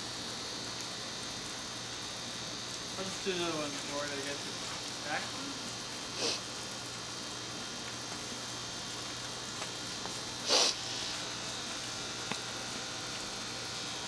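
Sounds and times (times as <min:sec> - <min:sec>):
background hiss: 0:03.0 - 0:06.6, 0:10.0 - 0:11.3.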